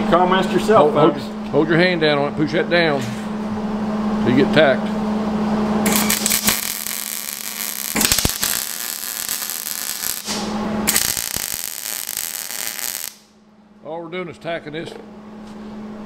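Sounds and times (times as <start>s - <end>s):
welder arc crackling: 5.9s - 13.3s.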